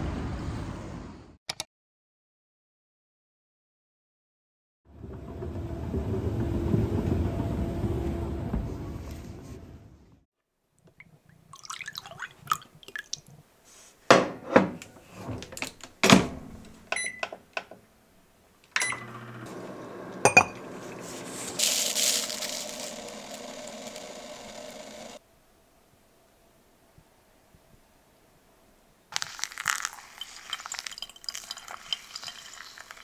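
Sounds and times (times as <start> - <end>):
appliance humming: 18.8 - 25.2
hissing liquid sound: 29.1 - 33.0.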